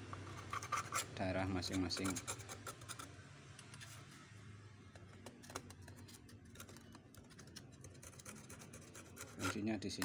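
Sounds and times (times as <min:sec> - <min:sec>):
metal tweezers clicking and scratching: 0:06.4 - 0:10.0.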